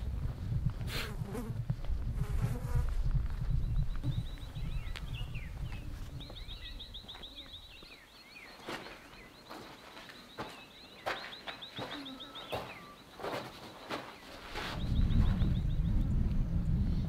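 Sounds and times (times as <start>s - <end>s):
birds chirping: 3.4s - 17.0s
low rumble: 14.8s - 17.0s.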